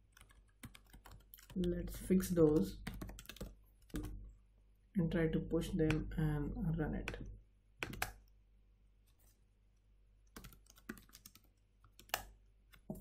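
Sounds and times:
keyboard keys clicking: 0.1s - 1.6s, 2.8s - 4.2s, 7.0s - 8.2s, 10.3s - 12.3s.

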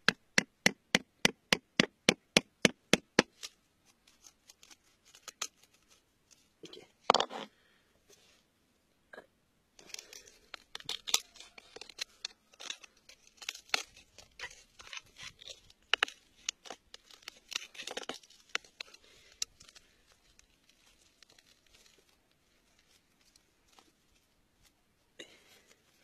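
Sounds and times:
metal pick scraping soil: 9.8s - 23.9s.

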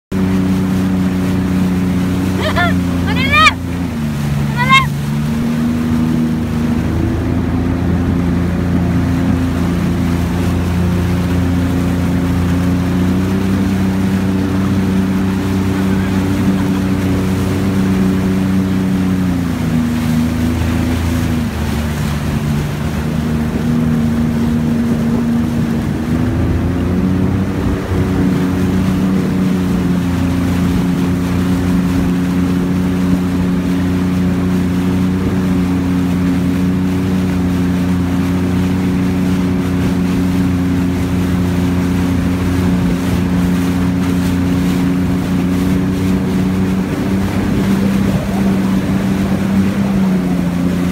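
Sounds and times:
jet ski engine running: 0.1s - 50.9s
rushing water: 0.1s - 50.9s.

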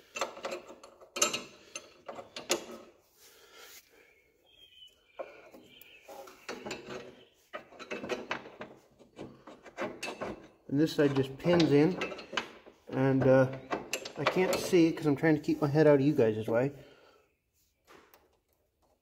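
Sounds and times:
light metal clicks and clanks: 0.0s - 2.9s, 6.3s - 15.1s.

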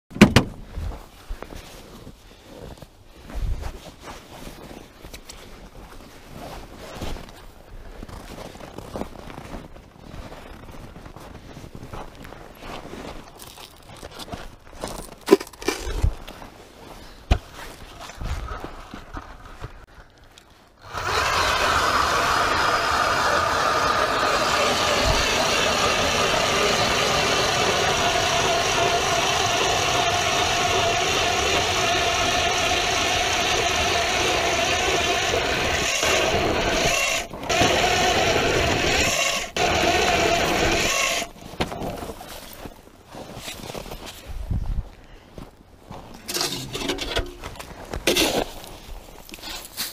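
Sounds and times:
electric ice auger drilling: 20.8s - 41.4s.

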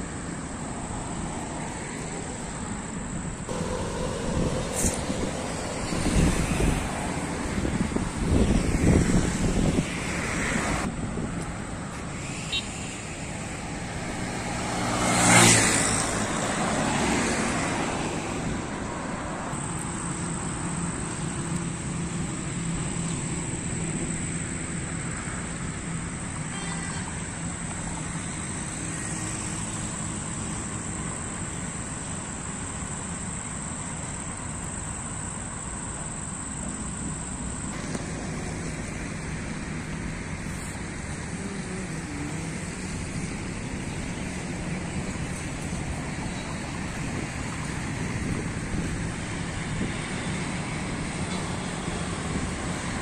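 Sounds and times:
road traffic: 0.0s - 53.0s
wind: 0.0s - 53.0s
high steady tone: 3.5s - 7.4s.

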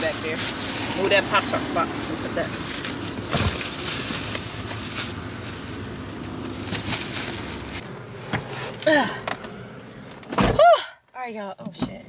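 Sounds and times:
grocery bags rustling and knocking: 0.0s - 8.8s
traffic: 0.0s - 12.0s
wind: 0.0s - 12.0s.

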